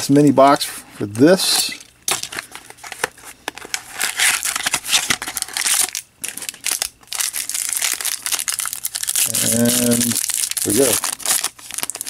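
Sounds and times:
foil pack crinkling: 0:02.1 - 0:12.0
shrink-wrap crinkling and tearing: 0:02.1 - 0:12.0.

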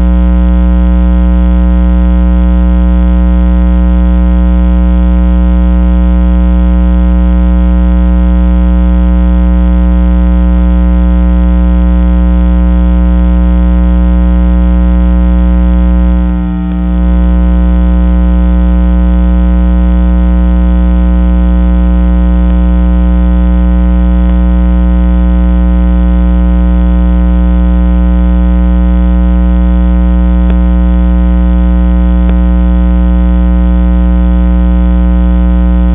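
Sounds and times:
loud electronic hum: 0:00.0 - 0:35.9.

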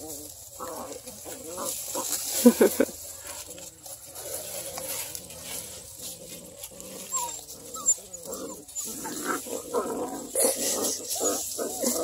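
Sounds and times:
puppies grumbling: 0:00.0 - 0:12.0
puppies whining: 0:04.5 - 0:12.0.

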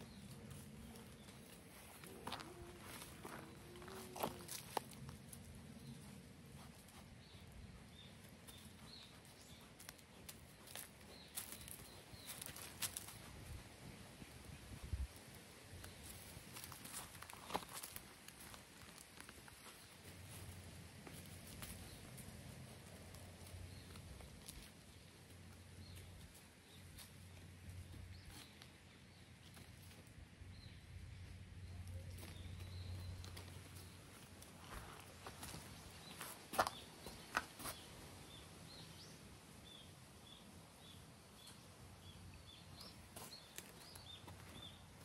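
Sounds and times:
animal steps on dry leaves: 0:00.0 - 0:05.5, 0:09.8 - 0:13.5, 0:15.8 - 0:24.8
dry leaves and twigs crackling: 0:00.0 - 0:07.0, 0:08.2 - 0:30.2, 0:31.6 - 0:38.0, 0:42.8 - 0:45.0.

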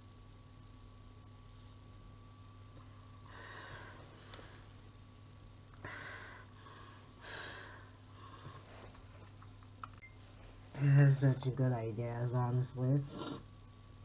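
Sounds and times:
heavy breathing in gas mask: 0:05.8 - 0:08.9.

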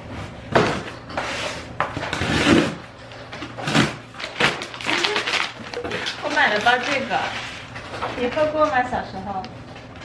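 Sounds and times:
packing tape being cut: 0:02.1 - 0:02.8, 0:03.6 - 0:07.3
cardboard scraping and rustling: 0:03.6 - 0:08.4.

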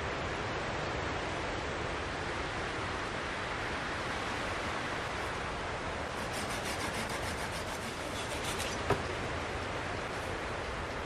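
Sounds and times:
steady background hiss: 0:00.0 - 0:11.0
hand saw cutting log: 0:06.1 - 0:09.1.

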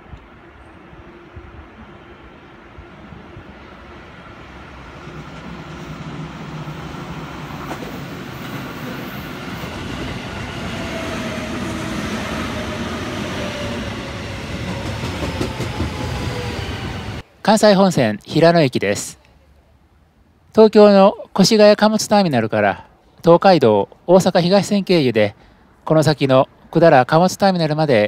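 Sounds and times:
electric train rumbling: 0:00.0 - 0:17.3.

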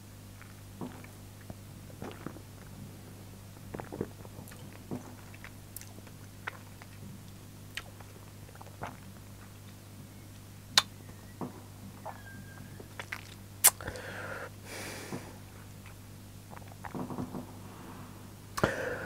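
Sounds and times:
steady low hum: 0:00.0 - 0:19.0
lip and tongue smacks: 0:10.7 - 0:11.0, 0:13.0 - 0:13.9.

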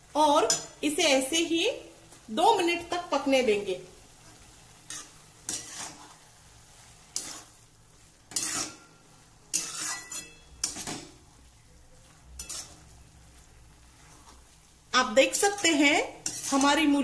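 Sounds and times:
radish sizzling: 0:00.0 - 0:17.0
metal spatula scraping metal pan: 0:04.8 - 0:06.2, 0:06.8 - 0:07.6, 0:08.2 - 0:11.4, 0:12.0 - 0:17.0.

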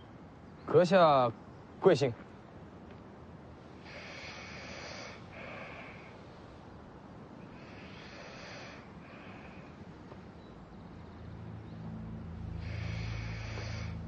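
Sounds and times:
man breathing in sleep: 0:03.8 - 0:06.2, 0:07.5 - 0:10.0, 0:12.5 - 0:14.0.

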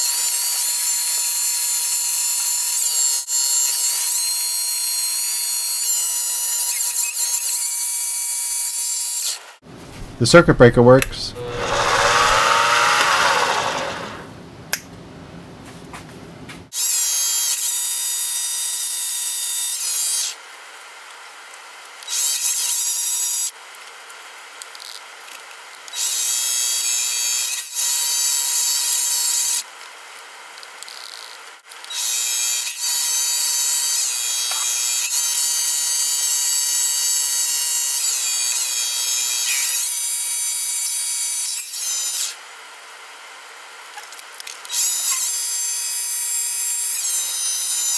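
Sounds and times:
faint motor whine: 0:11.3 - 0:14.6
lathe cutting metal squealing: 0:11.4 - 0:14.2.

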